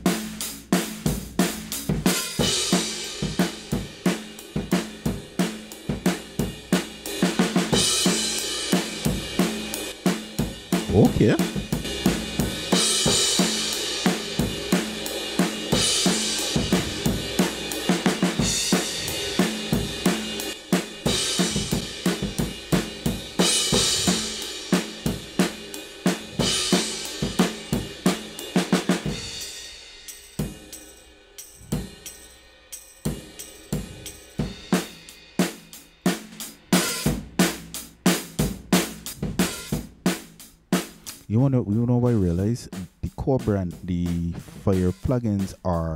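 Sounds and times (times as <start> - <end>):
drum kit groove: 0.0 - 45.9
cymbal crash: 11.5 - 35.4.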